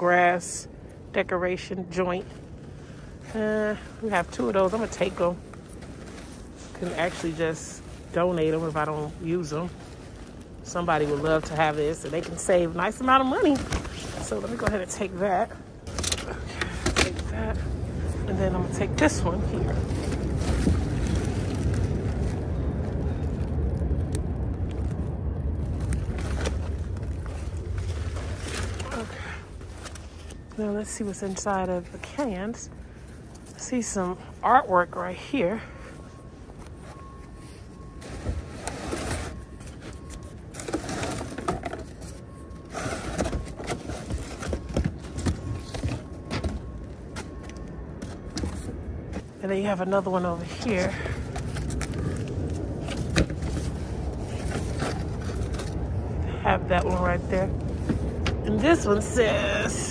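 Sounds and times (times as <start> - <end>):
cardboard rustling and scraping: 3.3 - 23.4, 25.6 - 32.2, 36.5 - 49.4, 50.4 - 56.0.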